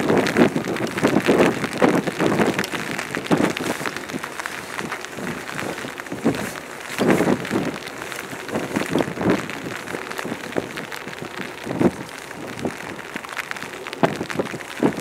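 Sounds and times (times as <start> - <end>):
rain pattering: 0.0 - 15.0
wind gusting across microphone: 0.0 - 15.0.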